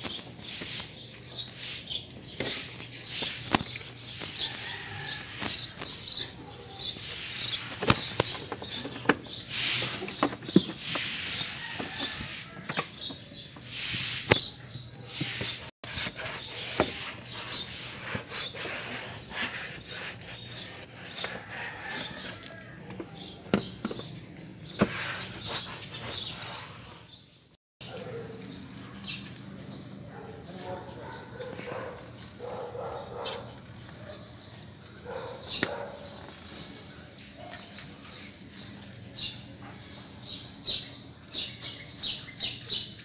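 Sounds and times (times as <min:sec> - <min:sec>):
cloth rubbing on plastic: 0:15.2 - 0:22.2.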